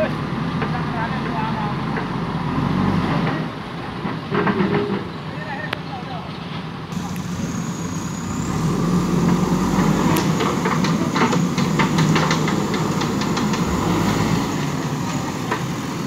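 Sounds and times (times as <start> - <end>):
diesel engine running: 6.9 - 16.0.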